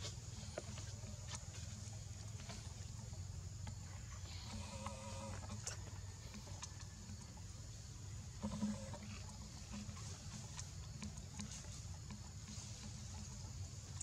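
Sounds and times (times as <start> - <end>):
steady low hum: 0.0 - 14.0
faint animal call: 3.8 - 7.2.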